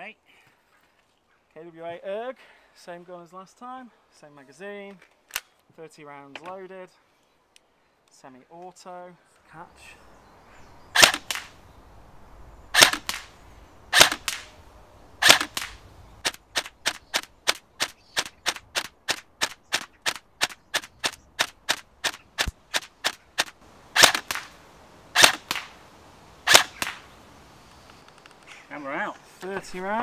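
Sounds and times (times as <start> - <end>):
airsoft rifle shots cracking: 10.9 - 11.6, 12.7 - 14.5, 15.2 - 25.8, 26.4 - 27.1.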